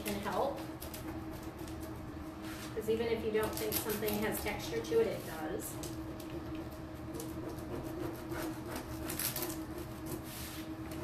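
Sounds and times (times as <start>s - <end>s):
heating system hum: 0.0s - 11.0s
transfer sheet rubbed by hand: 10.0s - 10.8s.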